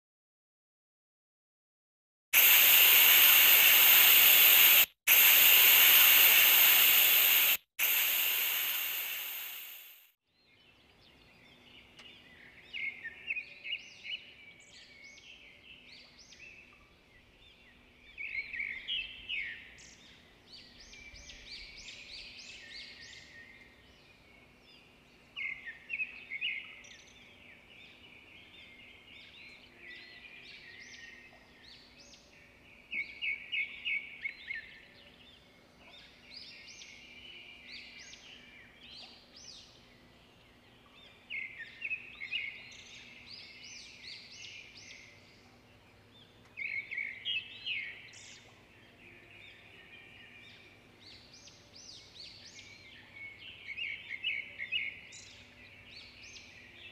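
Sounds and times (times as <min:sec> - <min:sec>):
birds chirping: 0:02.4 - 0:10.0
loud steady hiss: 0:02.4 - 0:10.1.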